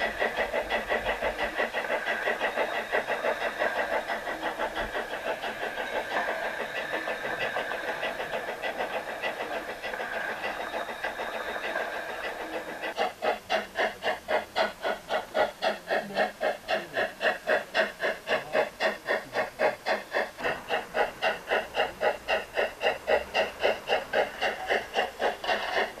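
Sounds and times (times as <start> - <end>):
model steam locomotive chuffing: 0.0 - 26.0.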